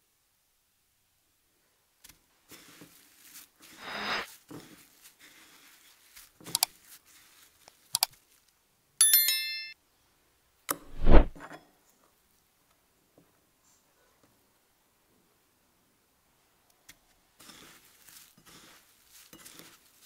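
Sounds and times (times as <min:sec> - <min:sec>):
ringing bell chime: 0:09.0 - 0:09.8.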